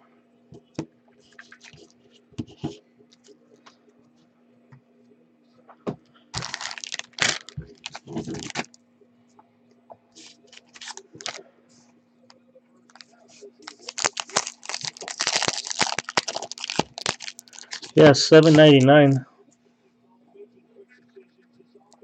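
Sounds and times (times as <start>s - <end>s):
faint steady hum: 0.0s - 22.0s
packaging rustling and crinkling: 6.4s - 8.8s, 10.2s - 11.4s, 12.9s - 19.2s
cards clicking and scraping: 10.2s - 11.4s, 13.7s - 19.2s.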